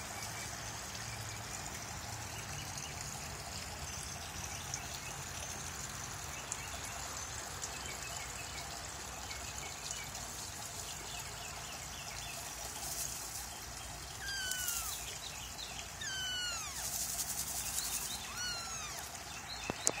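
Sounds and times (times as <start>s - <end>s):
water feature trickling: 0.0s - 20.0s
kitten mewing: 14.2s - 15.1s, 16.0s - 17.1s, 17.9s - 19.1s.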